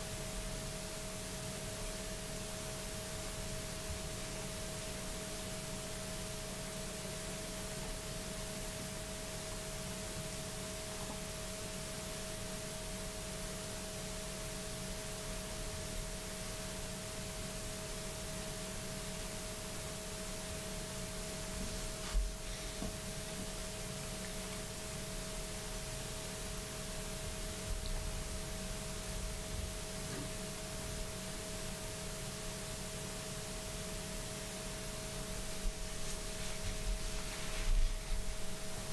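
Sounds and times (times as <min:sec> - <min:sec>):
faint electrical hum: 0:00.0 - 0:38.9
steady hiss: 0:11.4 - 0:38.9.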